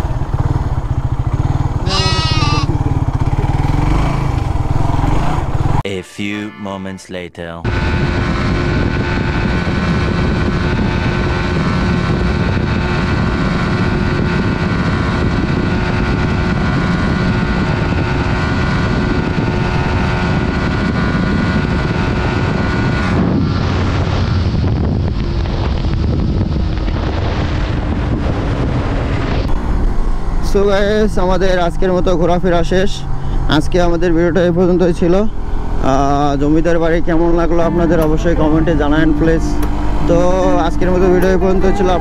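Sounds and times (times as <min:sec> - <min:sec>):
motorcycle engine running: 0:00.0 - 0:05.8, 0:07.7 - 0:42.0
wind noise on microphone: 0:07.7 - 0:31.6.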